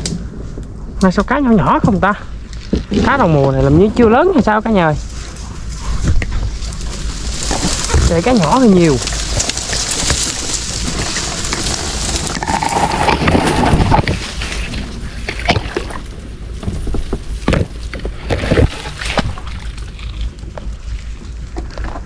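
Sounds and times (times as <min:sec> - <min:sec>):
wind rumble on microphone: 0:00.0 - 0:22.0
water sloshing and splashing: 0:05.1 - 0:16.2, 0:16.9 - 0:22.0.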